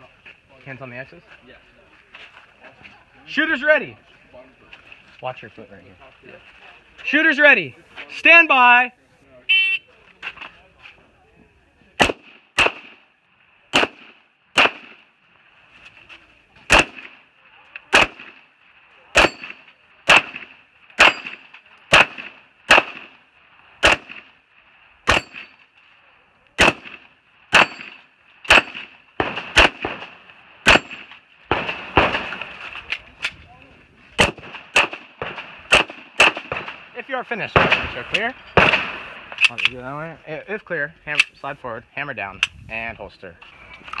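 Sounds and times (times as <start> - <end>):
pistol shots: 12.0 - 13.1, 13.7 - 15.1, 16.7 - 17.2, 17.8 - 18.5, 19.1 - 23.2, 23.8 - 24.4, 25.0 - 25.6, 26.6 - 32.7, 34.2 - 39.5.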